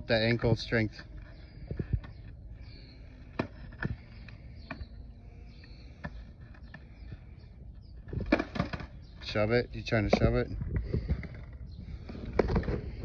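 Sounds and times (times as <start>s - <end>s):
skateboard knocking on concrete: 3.2s - 5.0s, 8.1s - 9.2s, 10.0s - 13.0s.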